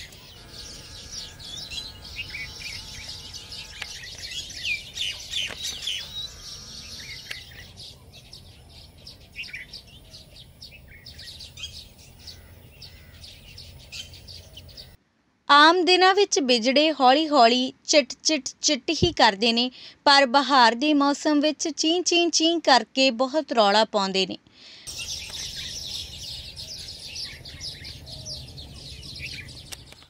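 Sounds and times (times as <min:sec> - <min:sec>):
birds chattering and chirping: 0:00.0 - 0:15.0, 0:24.9 - 0:30.0.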